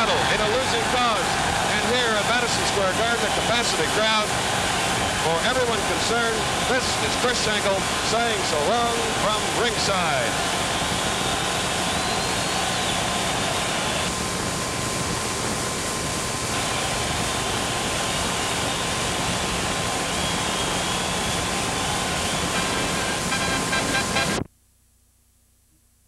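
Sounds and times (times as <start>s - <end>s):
arena crowd roaring: 0.0s - 14.1s, 16.6s - 23.2s
faint whistle tone: 10.8s - 14.1s, 20.0s - 22.6s.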